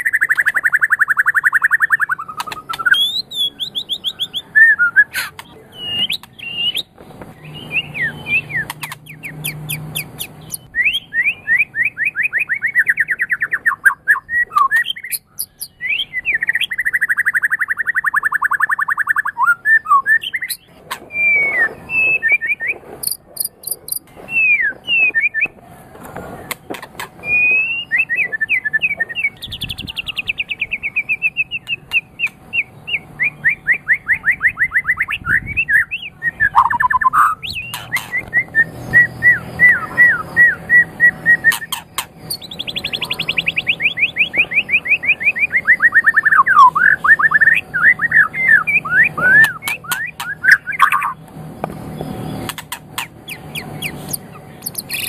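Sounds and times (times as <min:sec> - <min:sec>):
songbird singing trills: 0:00.0 - 0:25.6, 0:27.2 - 0:55.0.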